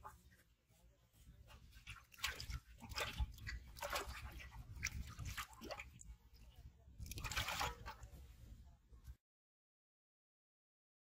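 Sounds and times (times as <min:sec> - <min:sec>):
fish splashing in metal pot: 0:01.8 - 0:06.2, 0:07.0 - 0:08.2.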